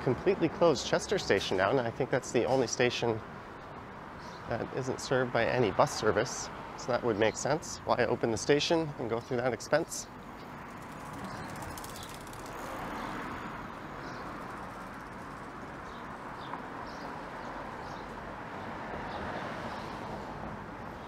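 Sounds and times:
city street traffic: 0.0s - 21.0s.

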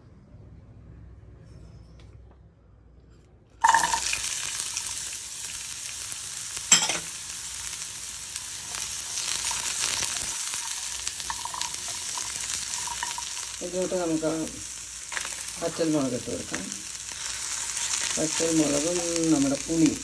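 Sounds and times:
food dropped into hot oil: 3.6s - 5.1s, 6.6s - 7.2s, 8.8s - 13.6s
sizzling in a pan: 3.6s - 20.0s.

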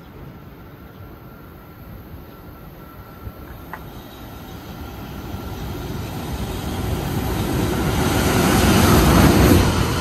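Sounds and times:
freight train rumbling on rails: 0.0s - 10.0s.

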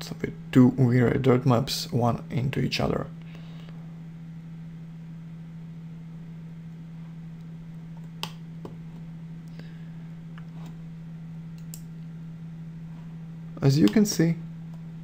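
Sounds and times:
steady low hum: 0.0s - 15.0s
computer mouse clicks: 11.6s - 11.9s.

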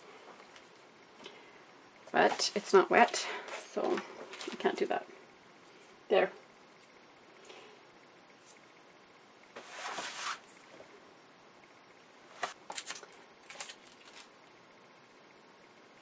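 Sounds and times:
paper rustling swish: 9.6s - 10.5s
sharp ticks and paper crinkles: 12.4s - 14.4s.

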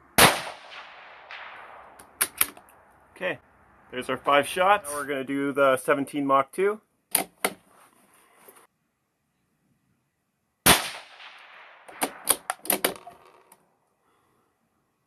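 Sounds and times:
rifle shot: 0.2s - 2.4s, 10.6s - 12.8s
rifle bolt metallic clicks: 2.0s - 2.7s, 7.1s - 7.6s, 11.9s - 13.5s.

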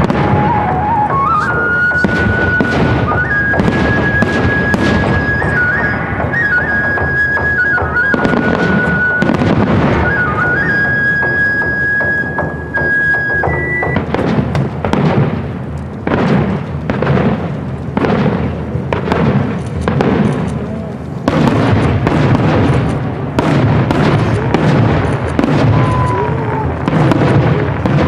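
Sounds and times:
high held melody music: 0.0s - 14.2s
fireworks bangs: 0.0s - 28.0s.

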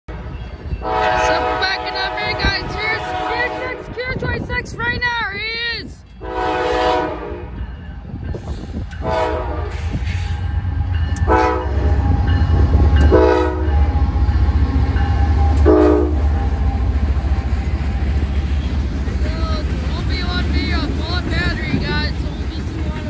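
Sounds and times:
locomotive air horn blasts: 0.8s - 4.0s, 6.2s - 7.6s, 9.0s - 10.0s, 11.2s - 12.1s, 13.0s - 13.8s, 15.6s - 16.3s
diesel engine rumble: 9.6s - 23.0s.

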